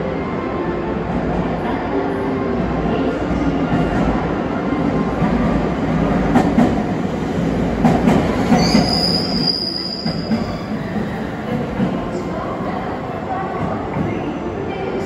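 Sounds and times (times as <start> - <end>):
train rumble: 2.5 - 15.0
high brake squeal: 8.6 - 10.8.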